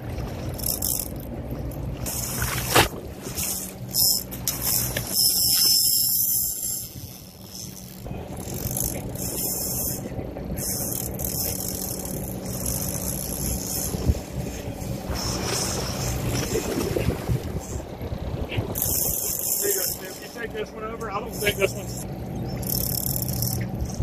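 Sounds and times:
boat engine running: 0.0 - 24.0
water hissing and splashing: 13.8 - 17.6.

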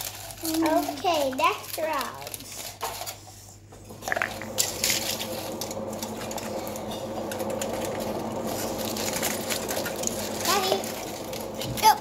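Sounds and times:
foil and paper crinkling: 0.0 - 3.4, 4.0 - 12.0
steady background hum: 0.0 - 12.0.

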